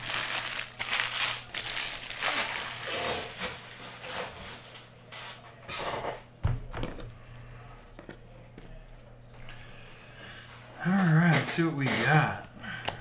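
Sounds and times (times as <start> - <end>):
cards rustling: 0.0 - 3.6.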